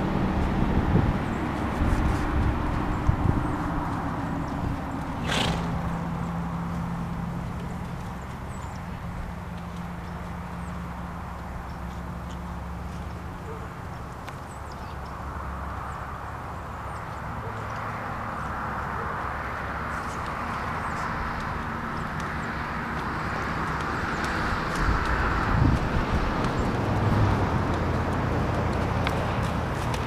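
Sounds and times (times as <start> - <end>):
steady rushing noise: 0.0 - 11.8, 18.2 - 30.0
horse hooves on sand: 0.0 - 30.0.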